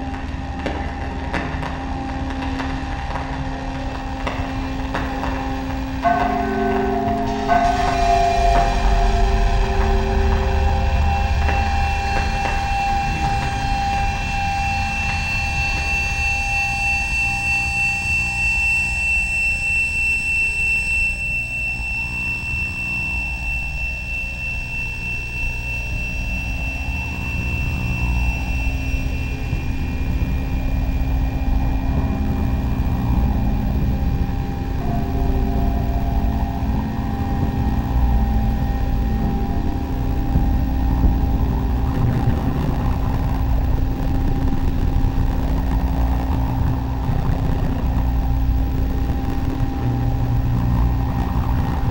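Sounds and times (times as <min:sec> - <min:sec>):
high whine: 0:00.0 - 0:51.9
steady low hum: 0:00.0 - 0:51.9
dense low rumble: 0:03.8 - 0:17.7, 0:26.0 - 0:51.9
steady electronic tones: 0:03.9 - 0:51.9
slow rising and falling tones: 0:04.1 - 0:51.9.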